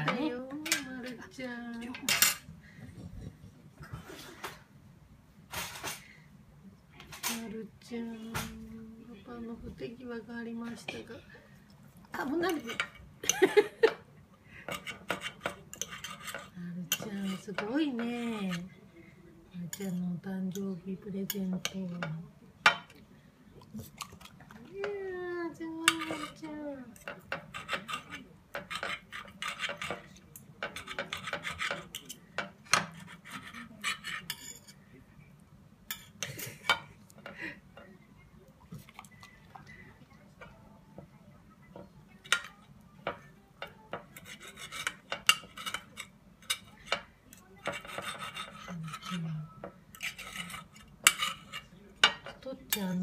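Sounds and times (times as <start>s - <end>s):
cutlery scraping on plate: 1.8s - 4.6s, 5.5s - 6.1s, 12.5s - 14.0s, 14.7s - 18.7s, 19.7s - 20.0s, 25.8s - 34.8s, 35.9s - 37.9s, 41.7s - 52.9s.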